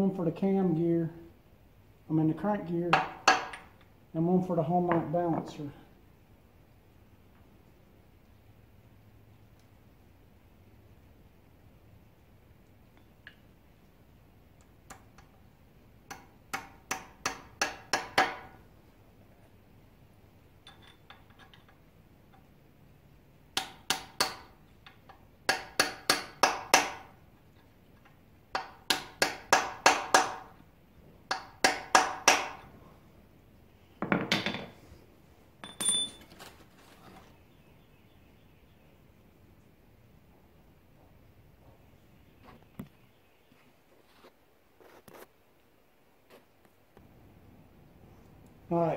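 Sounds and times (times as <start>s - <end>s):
hammer tapping on metal: 16.1s - 18.6s, 23.6s - 27.1s, 31.3s - 32.6s.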